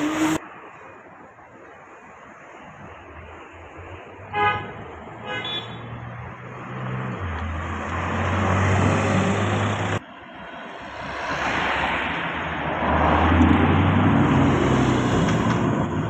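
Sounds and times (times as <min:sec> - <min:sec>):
car horn toots: 0:04.3 - 0:06.0
car engine driving past: 0:06.1 - 0:15.8.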